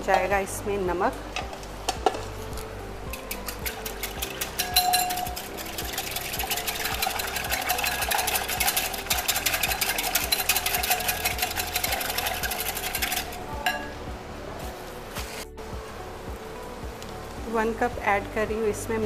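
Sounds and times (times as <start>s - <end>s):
whisk clattering in glass bowl: 3.1s - 13.4s.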